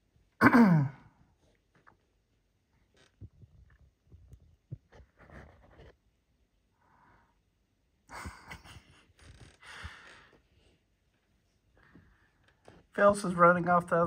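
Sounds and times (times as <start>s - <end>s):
breathing close to microphone: 9.2s - 10.8s.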